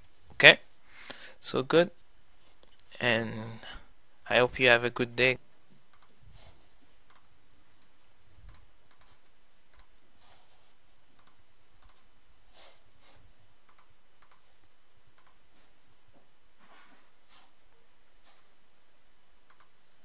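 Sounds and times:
faint background hiss: 0.0s - 20.0s
computer mouse clicking: 5.9s - 6.1s, 7.1s - 10.0s, 11.2s - 12.1s, 12.9s - 15.4s, 19.5s - 19.8s.

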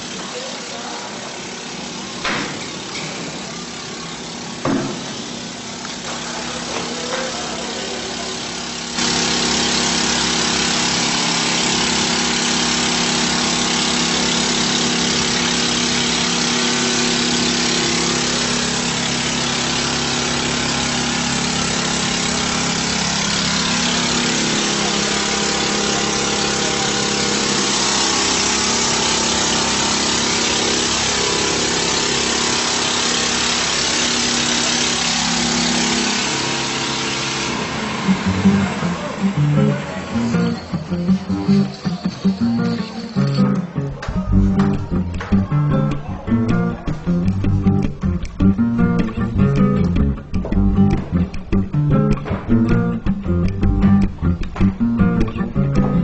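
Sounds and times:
engine running: 0.0s - 56.0s
sharp clicks: 43.3s - 56.0s.

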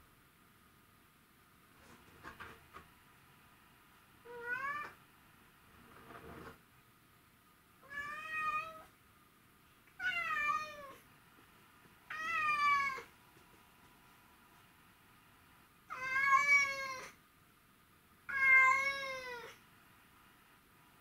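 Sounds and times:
cat meowing: 4.3s - 5.0s, 7.8s - 8.9s, 10.0s - 11.0s, 12.1s - 13.1s, 15.9s - 17.2s, 18.3s - 19.6s.

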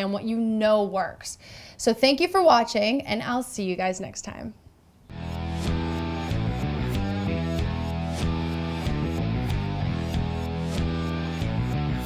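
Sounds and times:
rock music with guitar: 5.1s - 12.0s.

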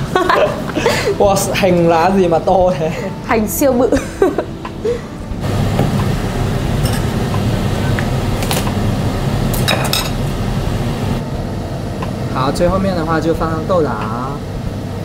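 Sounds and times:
utensils clinking on pot: 6.8s - 8.8s, 9.5s - 10.2s.

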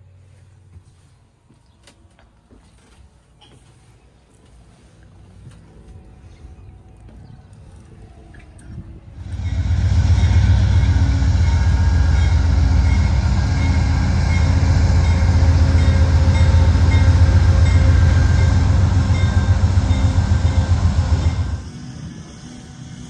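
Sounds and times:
diesel locomotive rumbling past: 9.0s - 23.0s.

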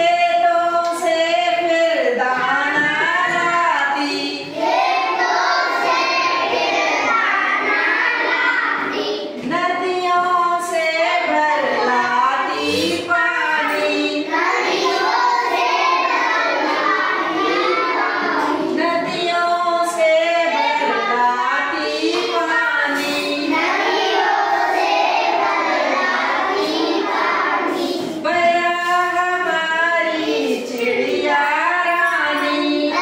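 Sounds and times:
children singing in unison: 0.0s - 33.0s.

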